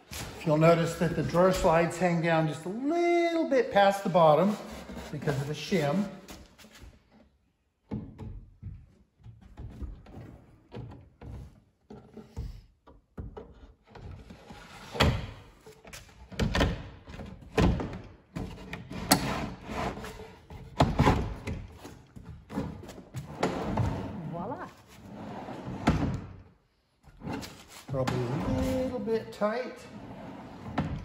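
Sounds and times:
drawer slides rolling: 29.9 - 31.0.

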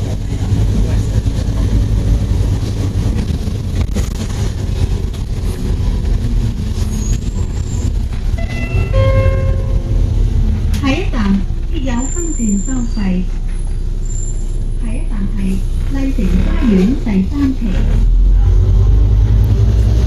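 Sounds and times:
bus engine rumble: 0.0 - 20.0
tyres on wet road: 0.0 - 20.0
high ringing tone: 8.4 - 10.0.

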